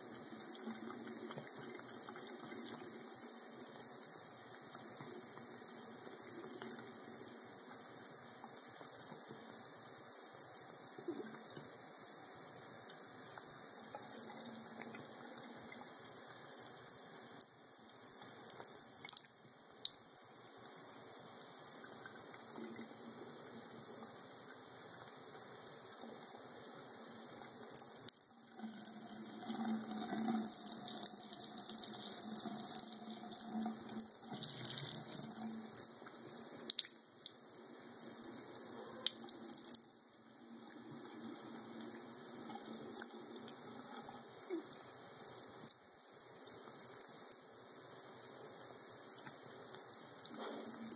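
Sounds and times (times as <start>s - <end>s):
faucet water trickling and splashing: 12.6s - 50.9s.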